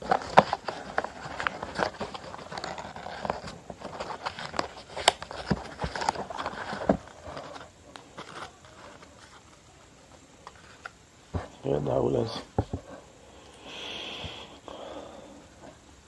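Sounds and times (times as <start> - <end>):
paper rustling and crackling: 0.0 - 9.8.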